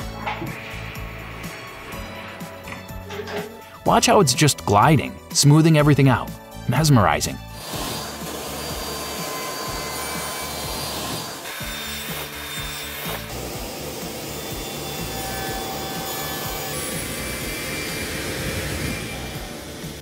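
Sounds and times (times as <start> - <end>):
circular saw cutting wood: 7.5 - 20.0.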